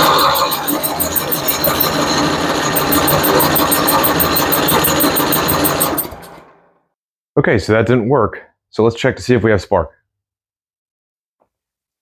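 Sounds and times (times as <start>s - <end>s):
snowblower engine turning over: 0.0s - 6.7s.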